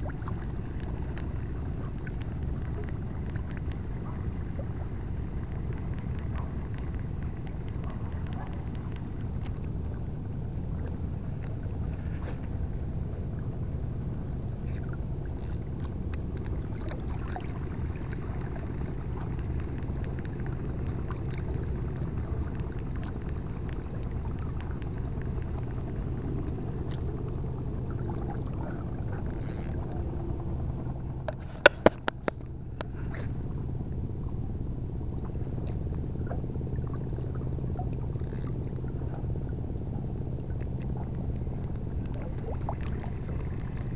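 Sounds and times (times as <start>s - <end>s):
boat engine rumbling: 0.0s - 43.9s
faint constant hum: 0.0s - 43.9s.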